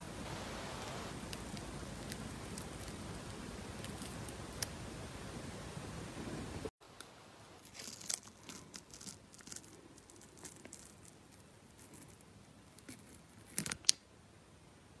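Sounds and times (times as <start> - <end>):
peel-off mask tearing and crackling: 1.1 - 4.7, 7.6 - 14.0.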